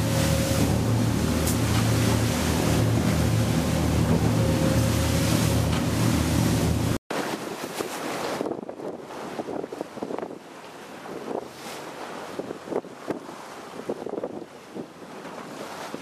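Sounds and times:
motorboat engines droning: 0.0s - 7.0s
rushing water: 0.0s - 8.4s
wind buffeting microphone: 0.0s - 16.0s.

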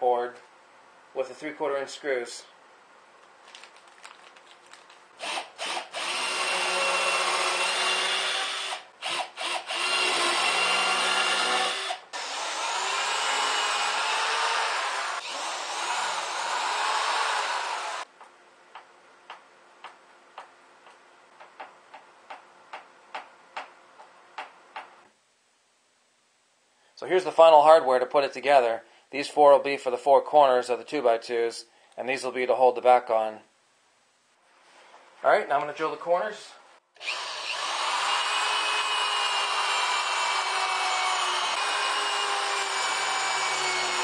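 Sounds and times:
power drill driving screws: 5.2s - 18.0s, 37.0s - 44.0s.

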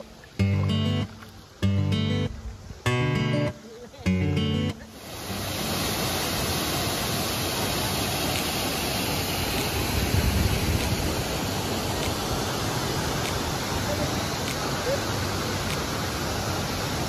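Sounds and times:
water flowing over rocks: 0.0s - 17.0s.

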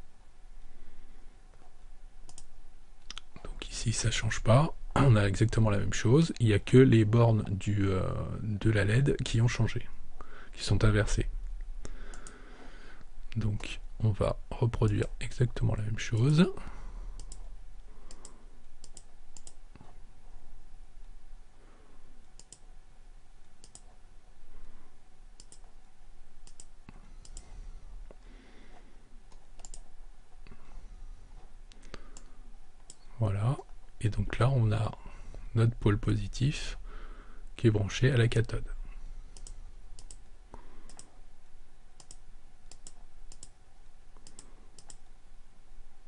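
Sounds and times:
computer mouse button clicking: 29.3s - 29.8s.

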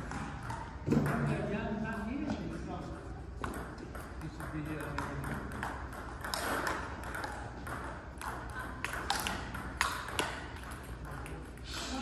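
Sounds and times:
table tennis ball clicks: 3.4s - 11.4s.

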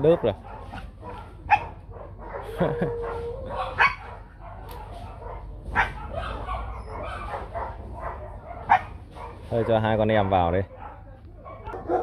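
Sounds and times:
dogs barking and yelping: 0.0s - 12.0s
dog yips: 5.8s - 9.4s.

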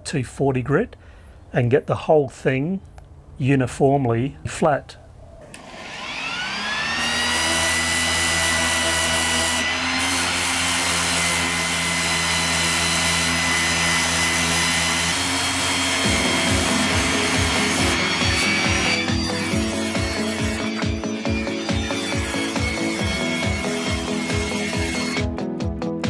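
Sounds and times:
orbital sander motor whine: 5.6s - 25.4s
low rapid pulsing: 15.9s - 25.2s.

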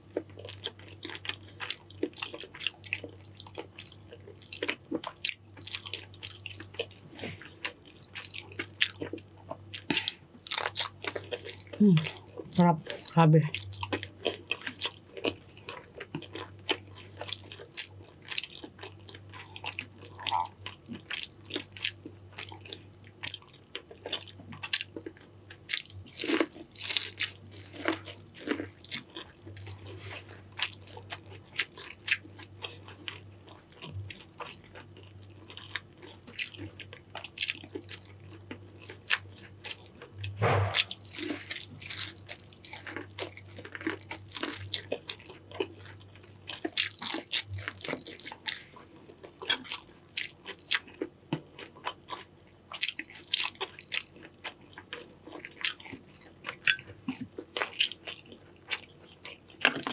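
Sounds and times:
person biting and chewing: 35.5s - 48.6s.

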